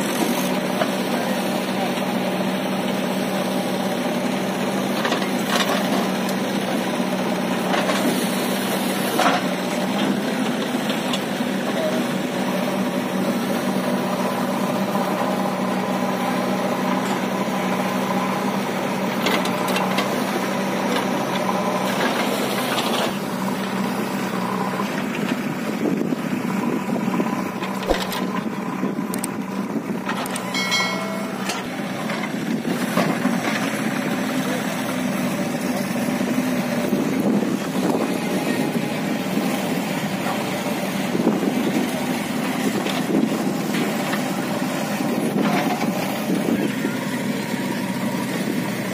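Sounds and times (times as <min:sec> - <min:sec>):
backhoe digging soil: 0:00.0 - 0:48.9
heavy diesel machinery running: 0:00.0 - 0:48.9
metal knocks: 0:30.4 - 0:31.8.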